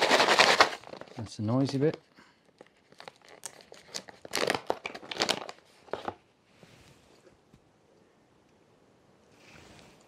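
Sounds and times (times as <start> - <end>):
food pouch crinkling: 0.0 - 6.2.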